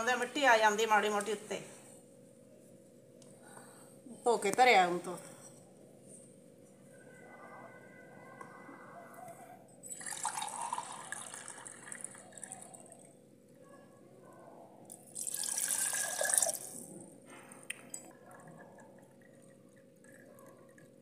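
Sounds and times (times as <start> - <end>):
water pouring into clay pot: 9.8 - 13.0, 15.1 - 16.9, 18.1 - 21.0.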